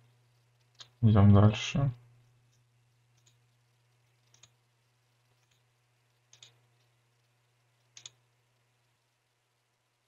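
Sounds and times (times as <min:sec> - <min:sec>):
faint low hum: 0:00.0 - 0:10.0
computer mouse clicks: 0:00.3 - 0:01.0, 0:02.2 - 0:03.5, 0:04.1 - 0:04.6, 0:05.2 - 0:08.2.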